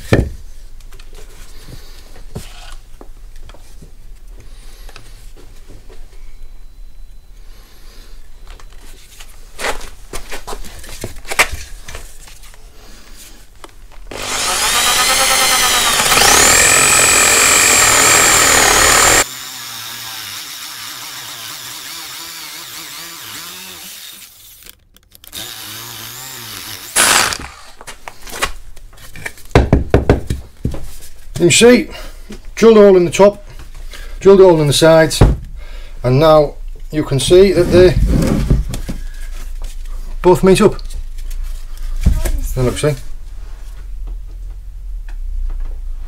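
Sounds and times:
drill bit knocking on wood: 14.1s - 19.2s
electric drill boring into wood: 14.1s - 27.8s.

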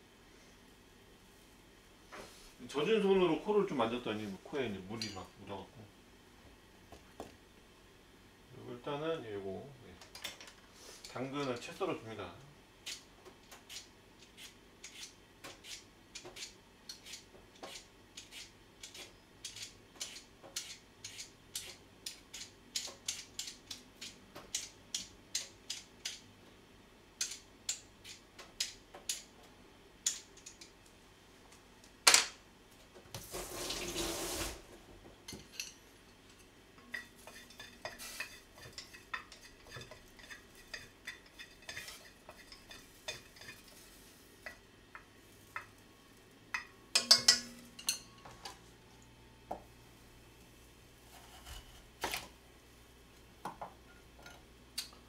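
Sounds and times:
chopsticks clicking in metal pot: 27.2s - 27.8s, 30.0s - 30.7s
tap water running: 33.1s - 35.0s.

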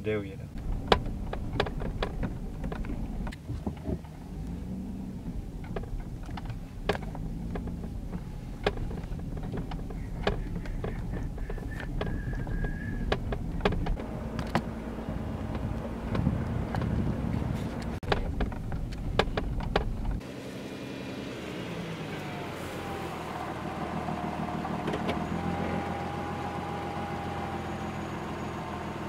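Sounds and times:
engine and road rumble: 0.0s - 29.0s
clicks and rattles in car: 0.1s - 20.2s.

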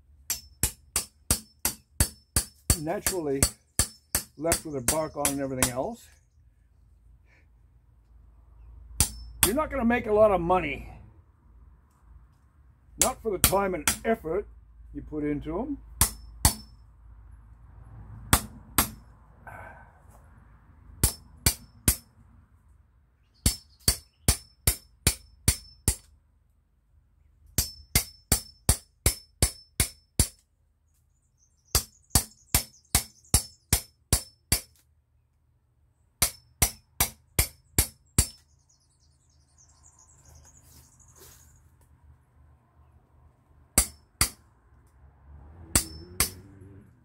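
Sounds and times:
hammer striking steel tool: 9.0s - 9.6s, 45.7s - 46.5s.

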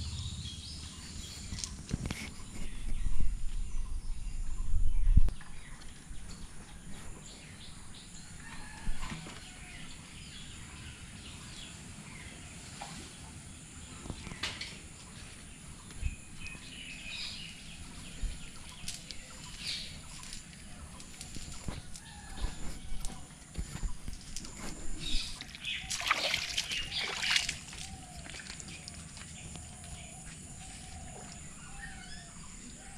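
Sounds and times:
small birds calling: 13.9s - 32.9s.

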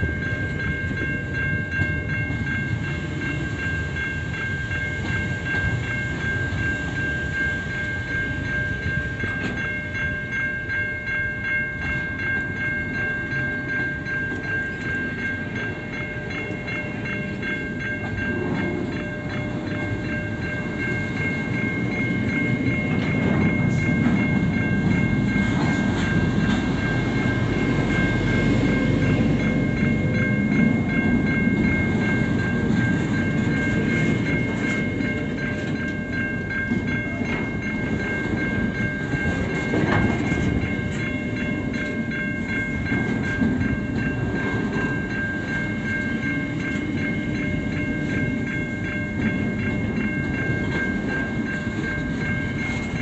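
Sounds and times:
train wheels clattering on rails: 0.0s - 53.0s.

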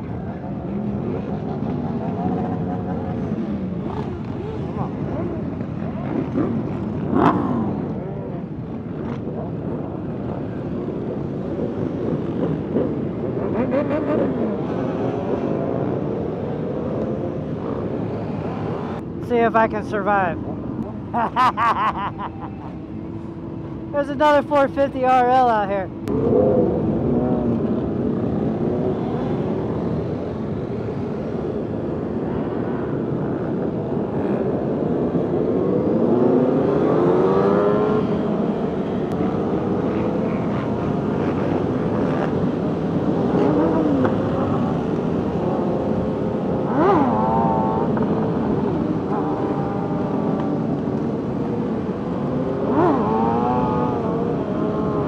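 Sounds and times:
motorcycle engines running: 0.0s - 19.2s, 25.4s - 55.0s.

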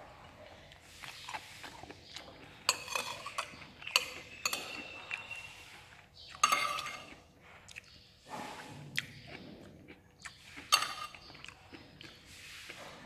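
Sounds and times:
metal spoon clinking on ceramic: 2.7s - 5.4s, 6.4s - 7.1s.

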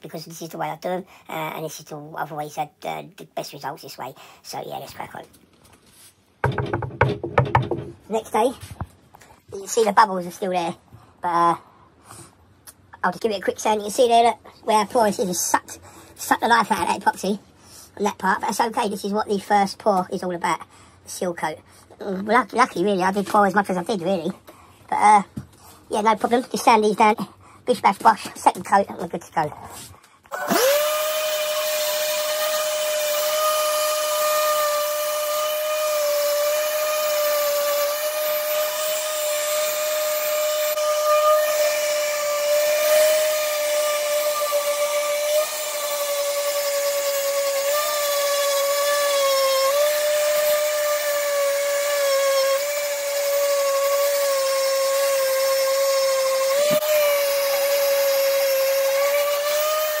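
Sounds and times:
orbital sander whining: 30.3s - 60.0s.

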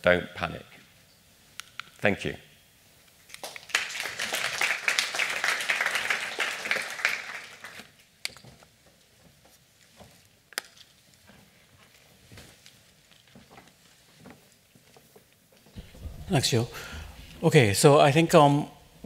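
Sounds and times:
audience applauding: 3.4s - 8.0s.

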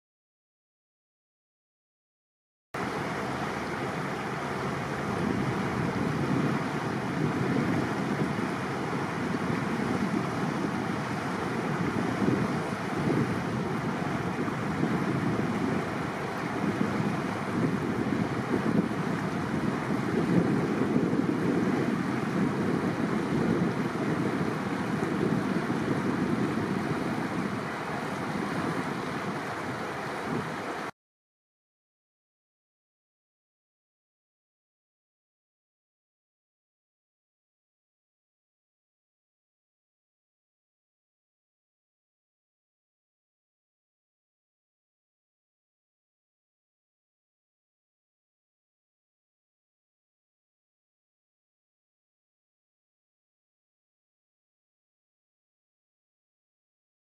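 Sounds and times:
faint engine hum: 2.8s - 30.9s
wind on microphone: 2.8s - 30.9s
boat water noise: 2.8s - 31.0s.

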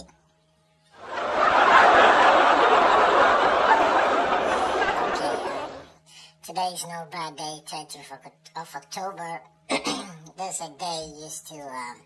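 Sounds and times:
crowd laughter: 1.0s - 5.9s.

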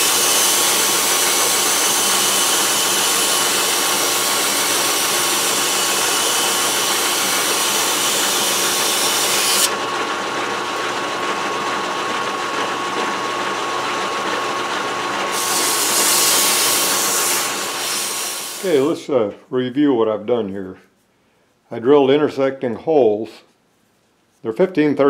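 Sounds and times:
metal lathe whine and hum: 0.0s - 18.9s
abrasive cloth hissing on workpiece: 15.4s - 18.9s.

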